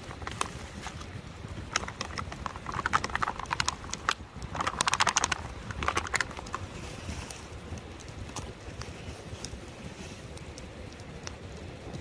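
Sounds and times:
clatter of sharp clicks: 1.7s - 6.6s.

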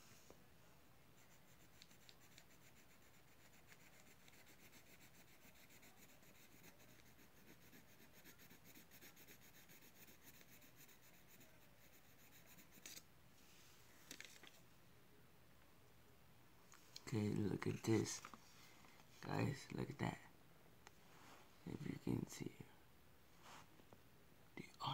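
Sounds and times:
pencil scratching on paper: 1.2s - 13.0s
paper rustle: 14.0s - 14.6s.

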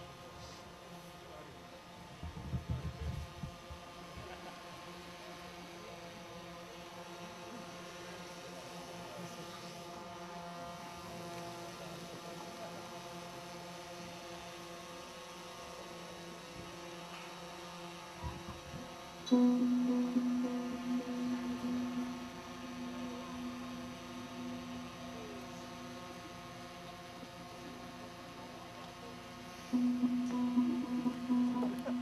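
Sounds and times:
steady hum of held tones: 18.0s - 32.0s.

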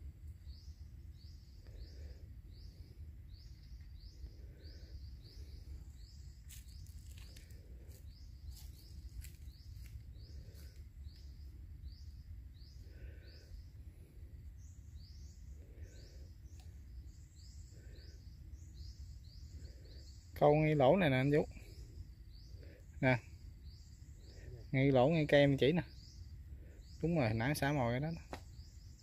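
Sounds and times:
steady low rumble: 0.0s - 20.3s
bird chirping: 0.4s - 29.0s.

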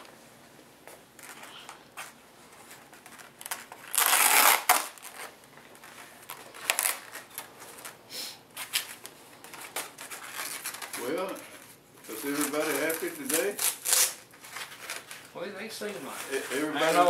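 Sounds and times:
duct tape ripping: 2.9s - 5.4s, 6.2s - 8.0s, 8.6s - 11.4s, 12.0s - 15.3s.

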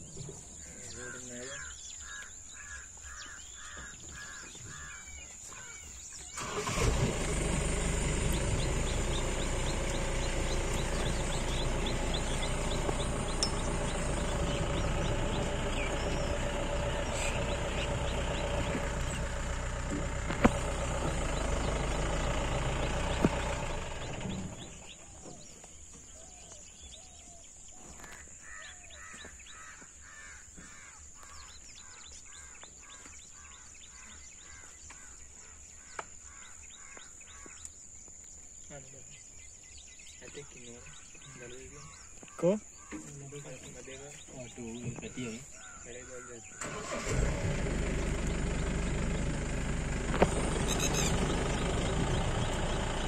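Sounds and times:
bird calling: 0.0s - 38.0s, 38.8s - 47.2s, 48.5s - 53.0s
jeep engine rumbling: 3.6s - 27.2s, 43.2s - 53.0s.

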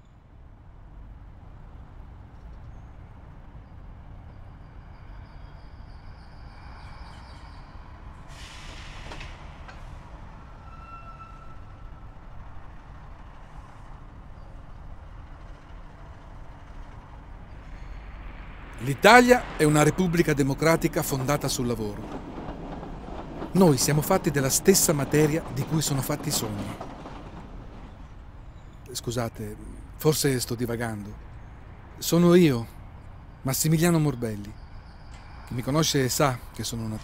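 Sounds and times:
distant city traffic rumble: 0.0s - 37.0s
air brake hiss: 8.3s - 9.6s.

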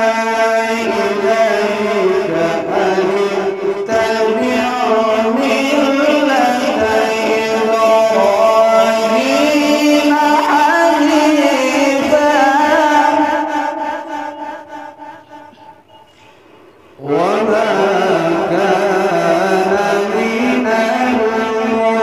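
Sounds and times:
man reciting melodically: 0.0s - 15.7s, 17.0s - 22.0s.

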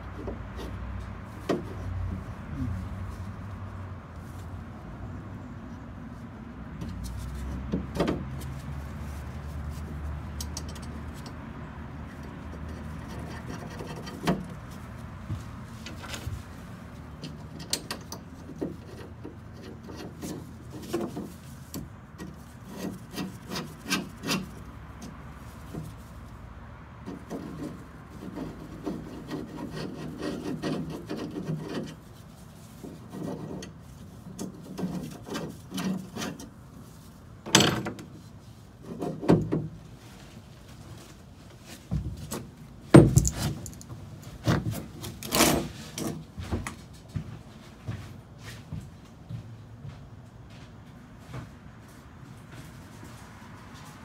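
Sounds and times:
metal bracket clicking and scraping: 10.2s - 15.0s, 15.8s - 26.0s, 27.0s - 36.7s, 37.4s - 38.2s, 42.2s - 46.2s.

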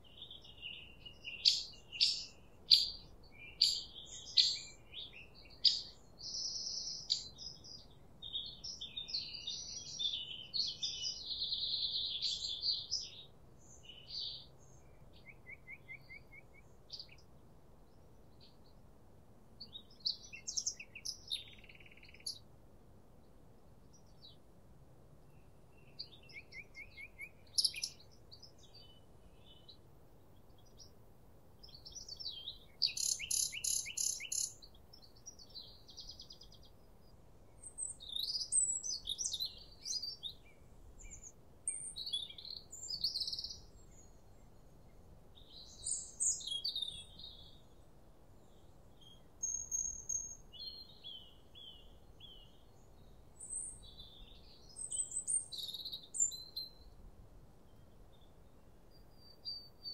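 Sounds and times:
faint wind noise: 0.0s - 59.9s
songbirds singing: 0.0s - 59.9s
bird trill: 0.3s - 7.6s, 26.0s - 28.6s, 31.8s - 34.7s.

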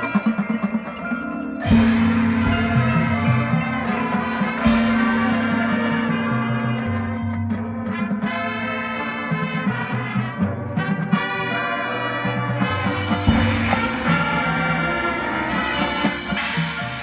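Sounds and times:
front ensemble percussion: 0.0s - 17.0s
marching band brass chords: 0.0s - 17.0s.

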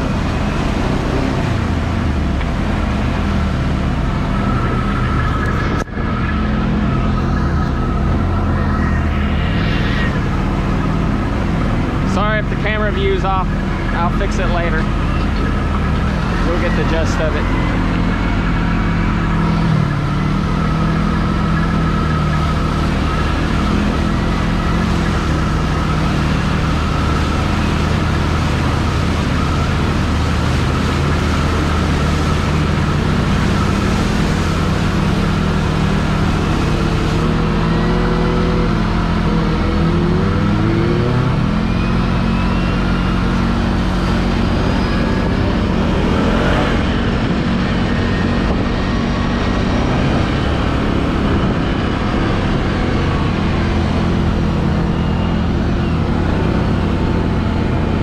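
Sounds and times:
atv engine revving: 0.0s - 58.0s
water spray rushing: 20.3s - 39.3s.

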